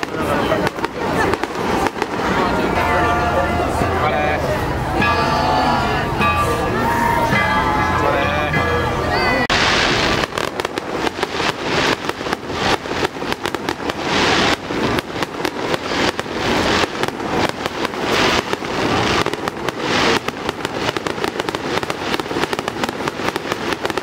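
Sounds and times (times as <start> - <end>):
fireworks bangs and crackles: 0.0 - 5.5, 9.5 - 24.0.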